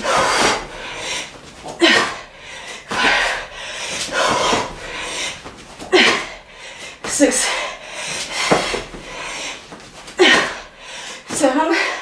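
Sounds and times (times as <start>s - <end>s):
woman breathing hard: 0.0s - 12.0s
woman grunting: 1.8s - 2.3s, 5.9s - 6.4s, 10.2s - 10.7s.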